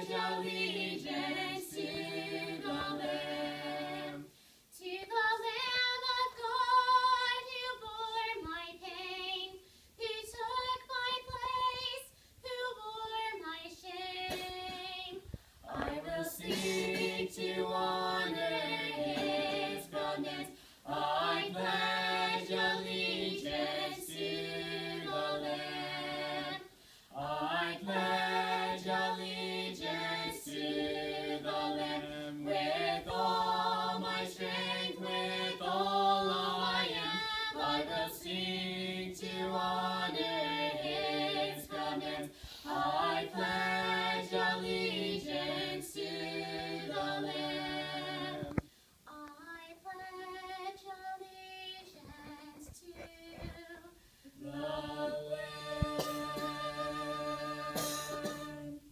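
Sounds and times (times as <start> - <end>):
vocal trio singing a hymn: 0.0 - 58.9.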